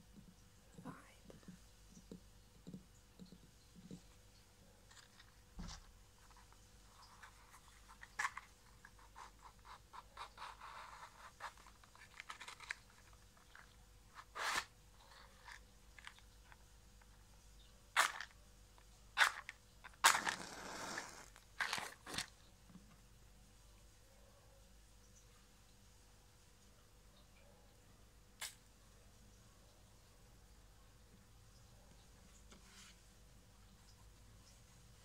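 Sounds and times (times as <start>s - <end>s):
matchbox rustling: 4.9s - 17.2s, 18.0s - 22.4s
match flaring: 20.0s - 22.2s.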